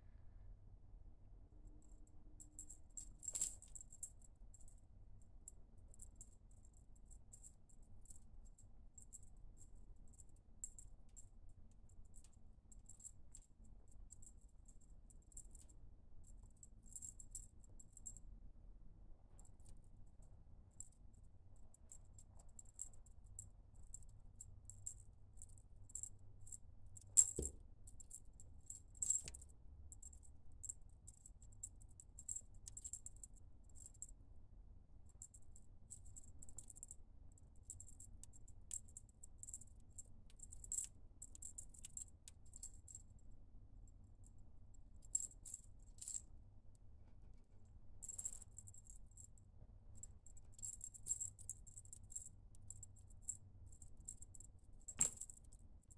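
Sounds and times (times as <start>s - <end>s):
small bell jingling: 2.4s - 4.1s.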